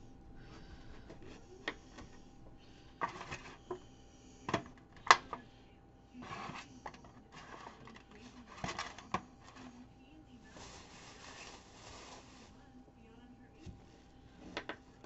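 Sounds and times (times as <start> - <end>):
rustling: 10.4 - 12.7.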